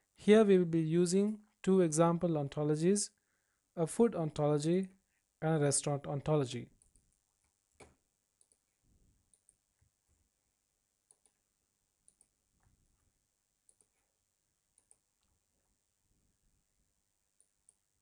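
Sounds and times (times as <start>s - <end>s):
computer mouse clicks: 7.7s - 8.6s, 11.1s - 11.4s, 12.0s - 12.3s, 13.7s - 14.0s, 14.7s - 15.3s.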